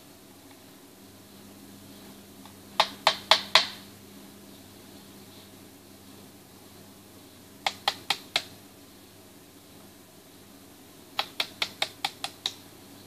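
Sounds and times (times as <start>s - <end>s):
small hammer tapping: 11.2s - 12.6s.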